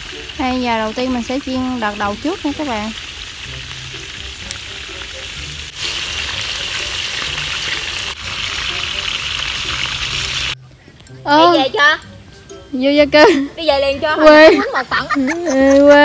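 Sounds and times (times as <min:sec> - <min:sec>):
meat sizzling in a wok: 0:00.0 - 0:10.6.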